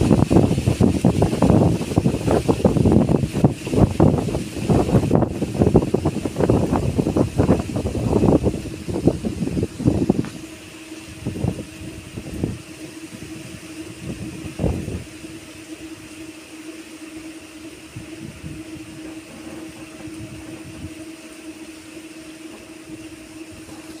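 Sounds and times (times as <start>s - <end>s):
wind buffeting microphone: 0.0s - 16.4s, 17.6s - 24.0s
low hum: 0.0s - 24.0s.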